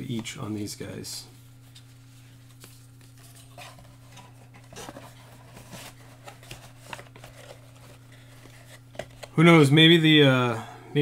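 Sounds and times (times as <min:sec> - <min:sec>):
steady low hum: 0:00.0 - 0:11.0
trading cards rustling and clicking: 0:01.7 - 0:09.6.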